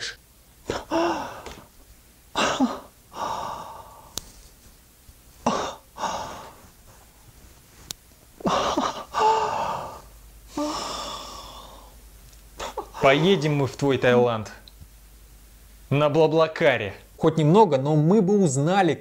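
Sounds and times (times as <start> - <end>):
man gasping and sighing: 0.7 - 1.7, 8.4 - 12.0.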